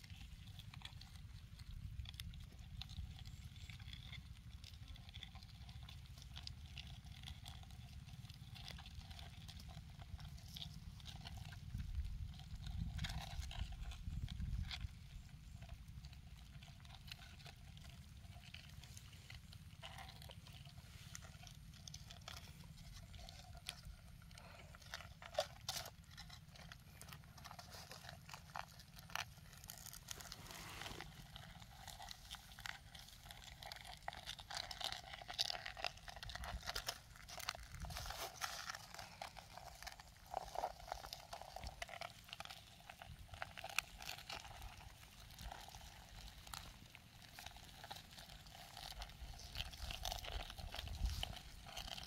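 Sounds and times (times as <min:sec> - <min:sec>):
hands digging through dry grass and soil: 0:18.7 - 0:52.0.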